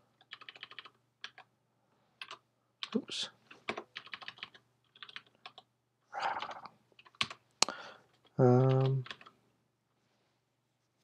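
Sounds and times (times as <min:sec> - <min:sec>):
keyboard typing: 0:00.2 - 0:01.5, 0:02.2 - 0:05.7, 0:06.3 - 0:07.4, 0:08.1 - 0:09.4.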